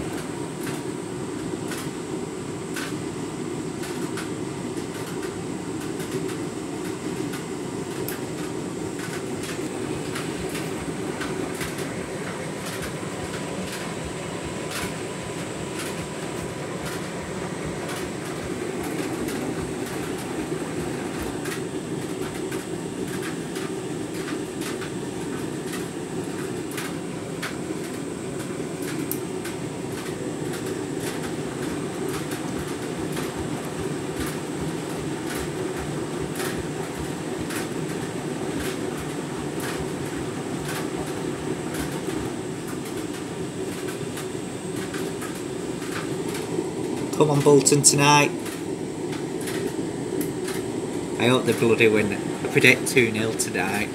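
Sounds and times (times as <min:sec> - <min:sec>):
washing machine drum churning: 0:02.8 - 0:53.9.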